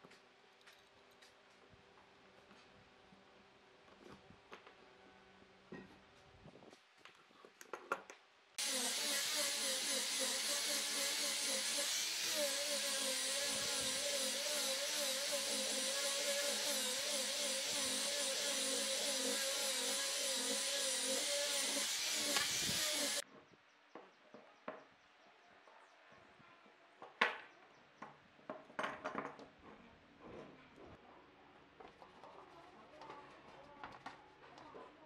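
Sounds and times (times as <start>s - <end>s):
angle grinder sanding wood: 8.6s - 23.2s.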